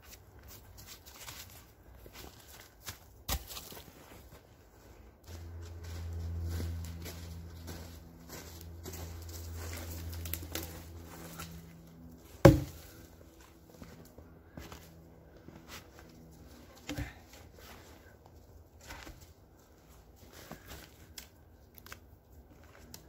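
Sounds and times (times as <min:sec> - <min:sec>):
footsteps in snow: 0:00.0 - 0:21.0
log knocking: 0:12.4 - 0:12.8
log dropped on tree trunk: 0:12.4 - 0:12.9.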